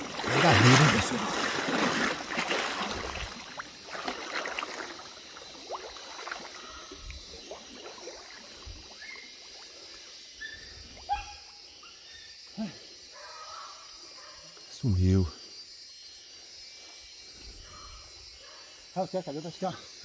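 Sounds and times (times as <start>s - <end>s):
splashing through shallow water: 0.0s - 11.5s.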